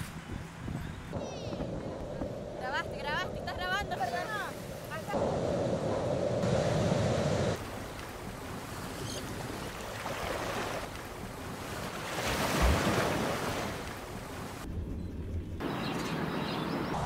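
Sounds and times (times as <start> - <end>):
wind: 0.0 - 17.0
ocean surf: 1.2 - 14.7
wave breaking: 4.5 - 14.7.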